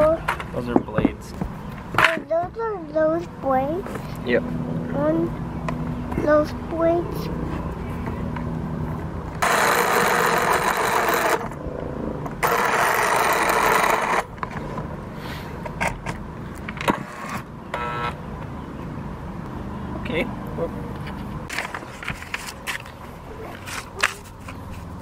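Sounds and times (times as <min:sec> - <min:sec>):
electric jigsaw sawing wood: 0:09.4 - 0:11.5, 0:12.4 - 0:14.3.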